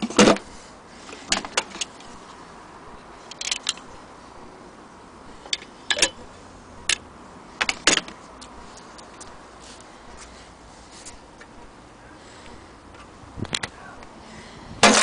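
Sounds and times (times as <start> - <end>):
metallic clicks and clinks: 3.3 - 3.9, 5.5 - 6.2.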